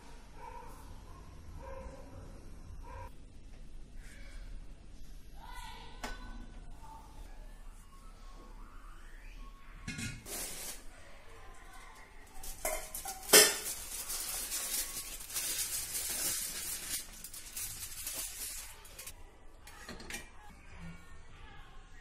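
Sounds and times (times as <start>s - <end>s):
aluminium foil crinkling: 10.3s - 10.9s, 11.5s - 19.1s.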